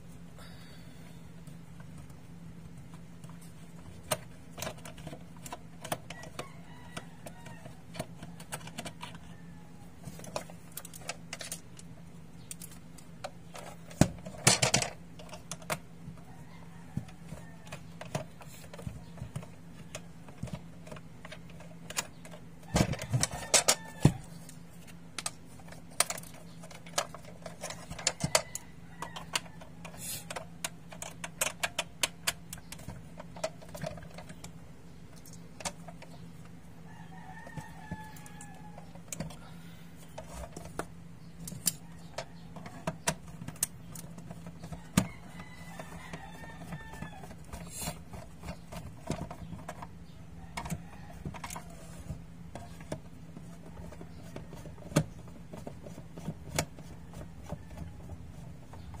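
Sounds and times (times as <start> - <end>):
steady low hum: 0.0 - 59.0
rooster crowing faintly: 6.1 - 10.4, 16.1 - 18.2, 36.7 - 40.7, 44.4 - 49.2
plastic radio case handled: 40.0 - 59.0.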